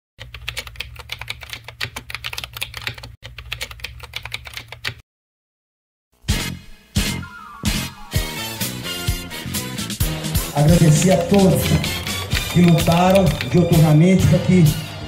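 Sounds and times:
keyboard typing clicks: 0.2s - 5.0s, 11.1s - 13.6s
music with heavy beat: 6.3s - 15.0s.

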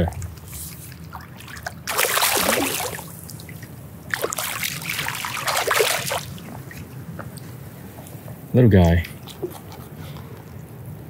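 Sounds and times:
fish splashing water: 0.0s - 7.1s.

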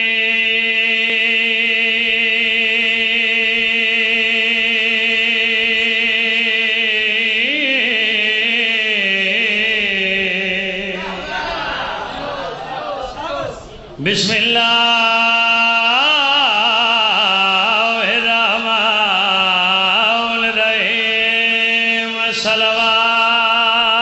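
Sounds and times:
man chanting: 0.0s - 11.3s, 13.0s - 24.0s.

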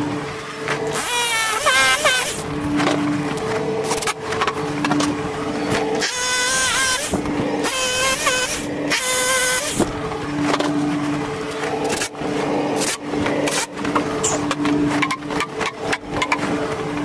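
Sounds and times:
hammer drill boring into concrete: 6.0s - 9.8s.

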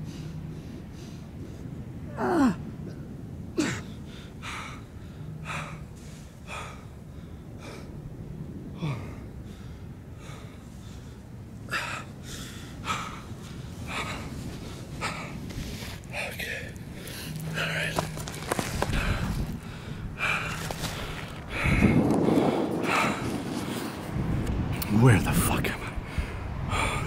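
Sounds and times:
person breathing hard: 3.6s - 8.0s, 8.7s - 24.0s, 26.0s - 27.0s.

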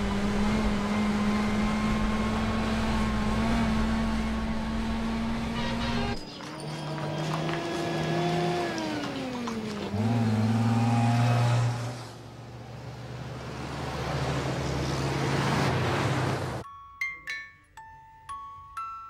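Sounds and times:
car engine running: 0.0s - 11.1s
road and tyre noise: 0.0s - 16.6s.

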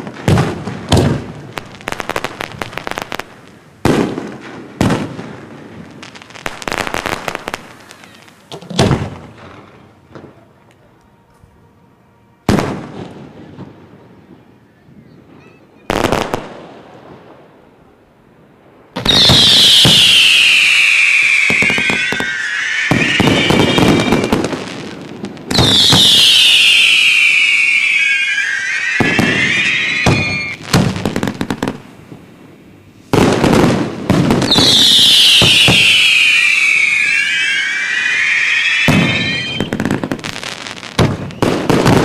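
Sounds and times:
firework cracks and pops: 0.0s - 10.8s, 15.9s - 17.0s, 18.9s - 32.0s, 33.1s - 42.0s
whistling fireworks: 0.0s - 42.0s
firework bang: 6.5s - 10.3s, 19.0s - 31.8s, 33.1s - 42.0s.

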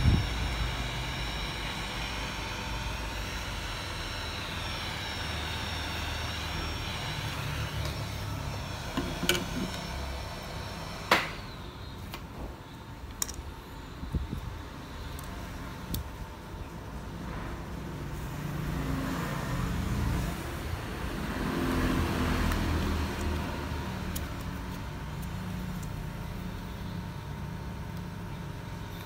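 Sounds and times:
small tools clicking: 13.1s - 13.4s.

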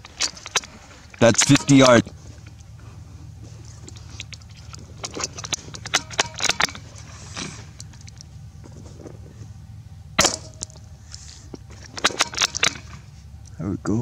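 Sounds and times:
sharp metallic clicks: 0.0s - 2.7s, 3.8s - 8.3s, 11.9s - 13.6s.

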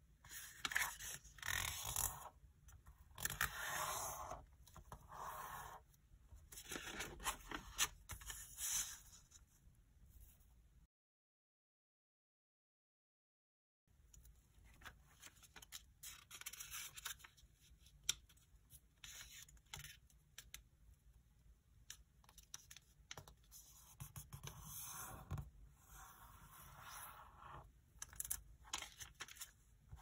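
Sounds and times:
paper rustling and crinkling: 28.1s - 30.0s.

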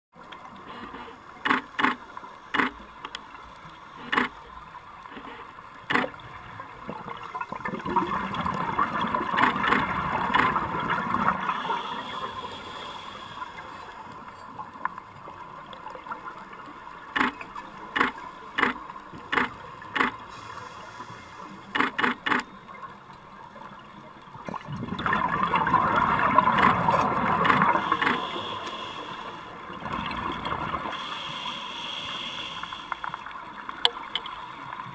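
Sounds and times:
underwater camera clicks: 1.4s - 3.2s, 5.9s - 6.2s, 17.2s - 20.2s, 21.7s - 22.5s.

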